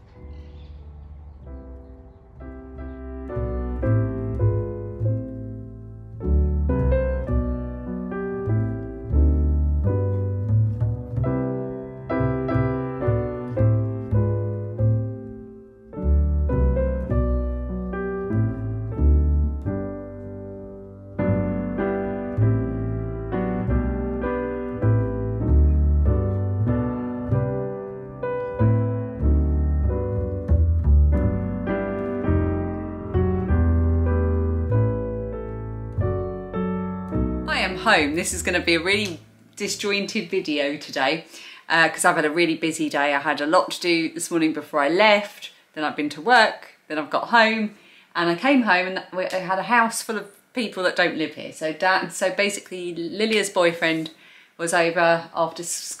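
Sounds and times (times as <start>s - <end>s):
piano music: 0.0s - 40.4s.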